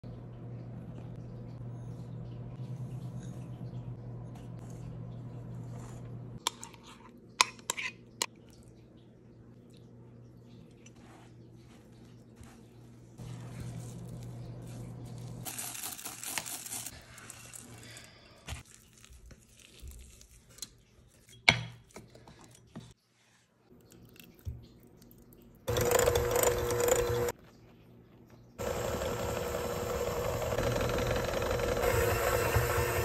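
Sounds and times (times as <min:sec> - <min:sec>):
electric hand mixer running: 0:25.7 - 0:27.3, 0:28.6 - 0:33.0.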